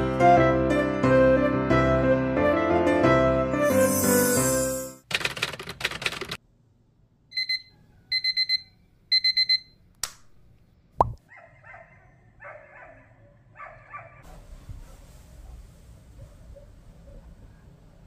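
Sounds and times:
digital alarm beeping: 0:07.3 - 0:09.8.

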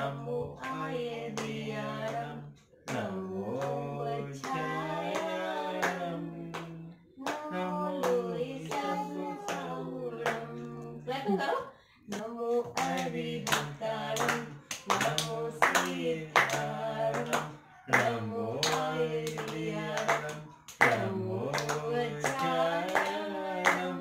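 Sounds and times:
person singing slow song: 0:00.0 - 0:11.4, 0:12.1 - 0:24.0
hand clapping: 0:02.9 - 0:03.8, 0:04.4 - 0:10.7, 0:12.1 - 0:24.0.

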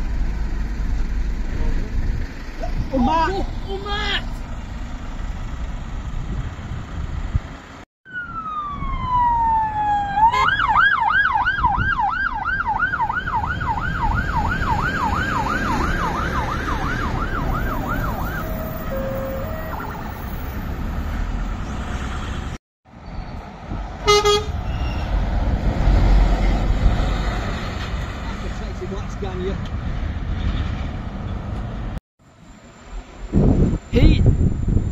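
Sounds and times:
road traffic: 0:00.0 - 0:34.9
emergency siren wailing and yelping: 0:08.1 - 0:20.4
short horn toot: 0:18.8 - 0:19.9, 0:24.0 - 0:25.1.

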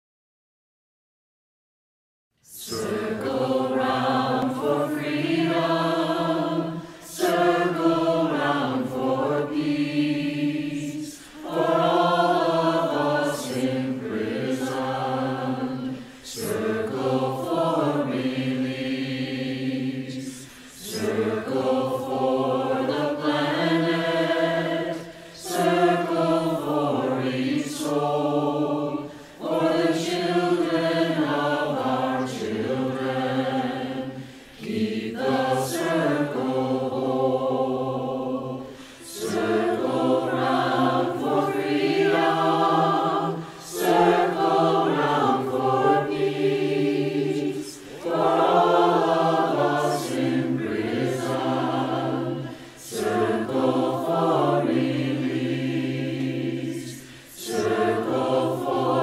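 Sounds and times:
choir singing a chant: 0:02.4 - 0:59.0.

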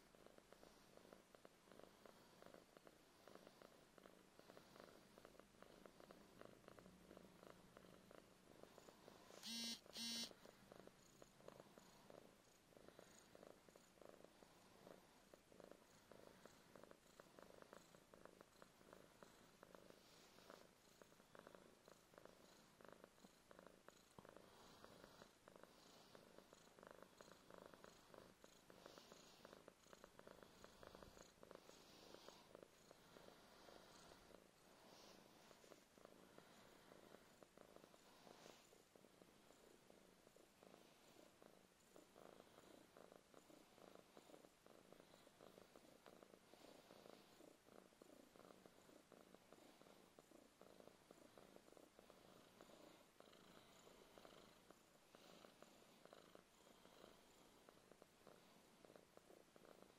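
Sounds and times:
cat purring: 0:00.0 - 0:59.9
short beeps: 0:09.4 - 0:10.3.

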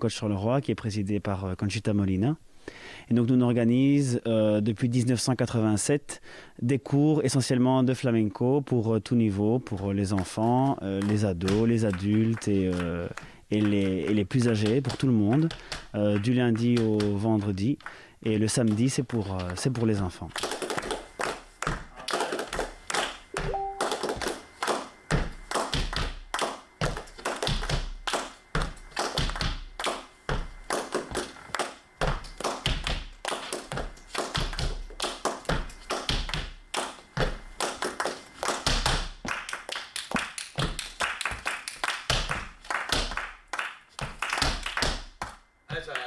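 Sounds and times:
flamenco shoes tapping and stamping: 0:09.7 - 0:12.9, 0:13.6 - 0:23.1, 0:25.1 - 0:45.4.

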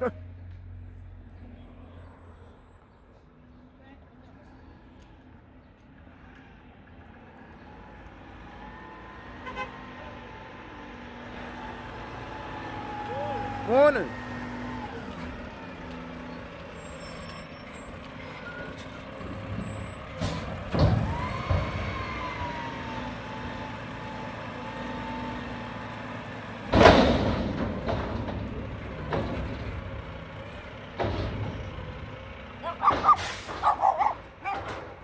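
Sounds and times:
garbage truck running: 0:07.6 - 0:35.0
air brake hiss: 0:33.1 - 0:33.6.

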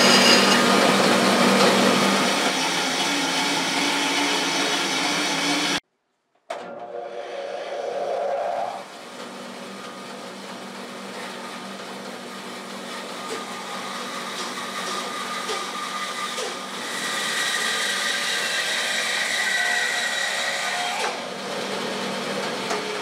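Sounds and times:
bandsaw cutting wood whine: 0:00.0 - 0:05.8, 0:06.7 - 0:23.0
bandsaw running: 0:00.0 - 0:05.8, 0:07.0 - 0:23.0.

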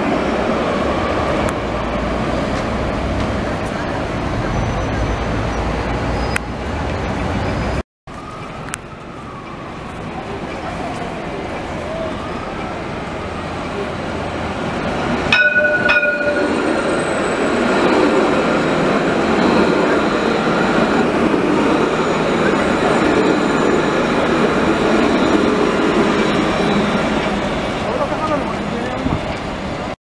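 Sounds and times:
tram passing: 0:00.0 - 0:30.0
tram horn toots: 0:15.3 - 0:17.9.

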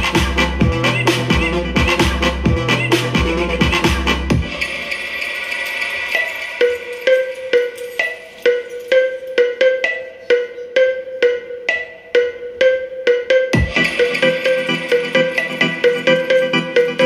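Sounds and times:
repeating percussive note: 0:10.9 - 0:17.0.

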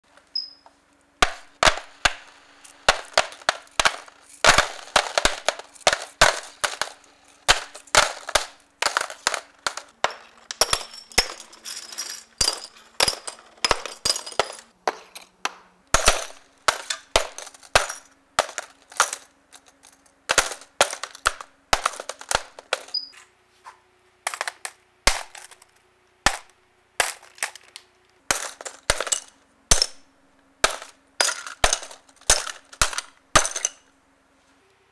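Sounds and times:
objects clattering onto tabletop: 0:24.3 - 0:25.7.

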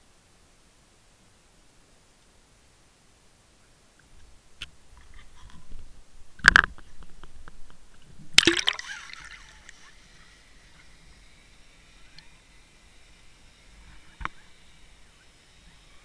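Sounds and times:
water bubbling: 0:08.3 - 0:10.0
splash into the sea: 0:08.4 - 0:09.8.

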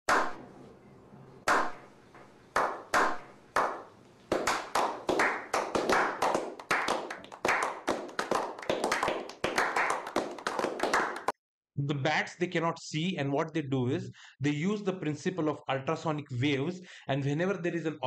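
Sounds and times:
people clapping: 0:00.1 - 0:00.4, 0:01.5 - 0:01.8, 0:02.5 - 0:11.4.

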